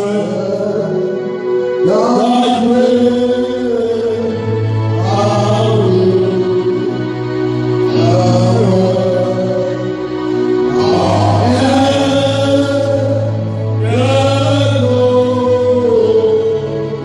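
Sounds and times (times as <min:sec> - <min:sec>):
steady low drone tone: 0:00.0 - 0:17.0
men singing a worship chant: 0:10.7 - 0:16.5.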